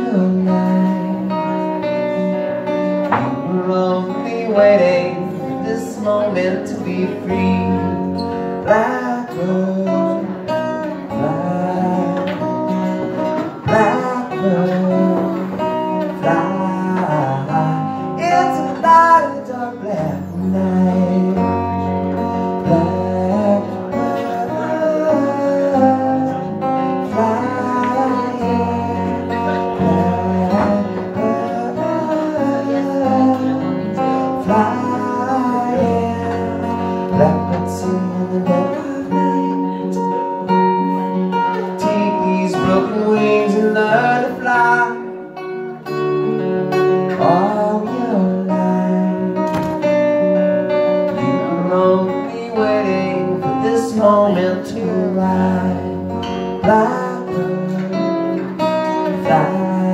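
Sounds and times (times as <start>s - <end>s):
acoustic guitar strummed: 0.0s - 59.9s
man singing: 0.0s - 59.9s.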